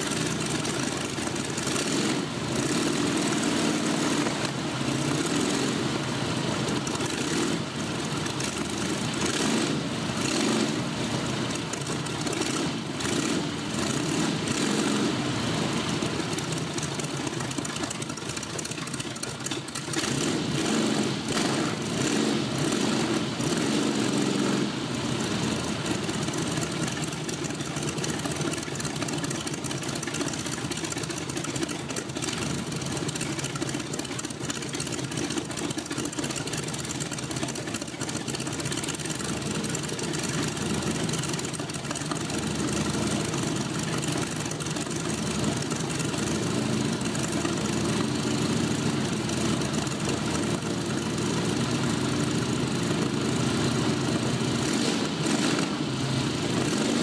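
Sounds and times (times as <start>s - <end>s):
propeller aircraft engine idling: 0.0s - 54.7s, 55.9s - 57.0s.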